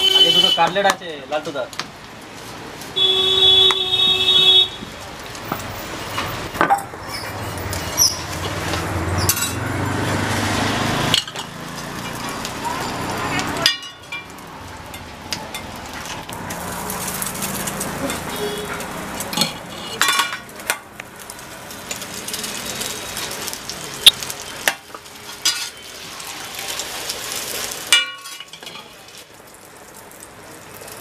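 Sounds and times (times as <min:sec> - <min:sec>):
food sizzling on griddle: 0:00.0 - 0:31.0
metal spatula scraping griddle: 0:07.0 - 0:09.6, 0:14.9 - 0:20.5, 0:25.2 - 0:26.3, 0:27.2 - 0:29.0
spatula clanking on griddle: 0:13.6 - 0:16.3, 0:17.6 - 0:20.9, 0:24.0 - 0:25.9, 0:27.9 - 0:29.0.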